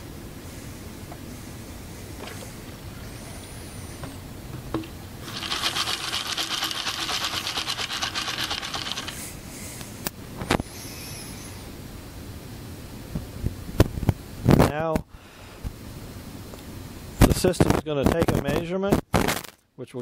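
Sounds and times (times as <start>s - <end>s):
aggregate rattling in tube: 4.7s - 9.2s.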